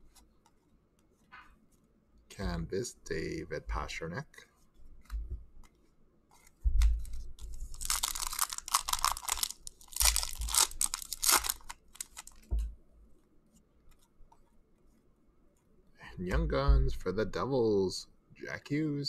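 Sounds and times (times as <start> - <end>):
plastic crinkling and crackling: 4.9 - 12.7.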